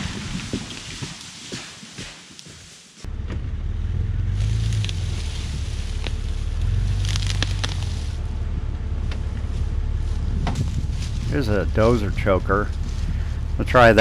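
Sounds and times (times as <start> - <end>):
car engine idling: 3.0 - 14.0.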